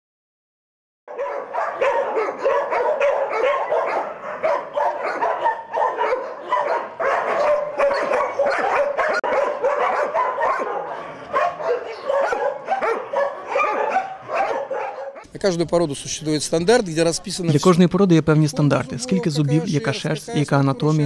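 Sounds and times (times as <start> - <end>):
dogs barking and yipping: 1.1 - 15.3.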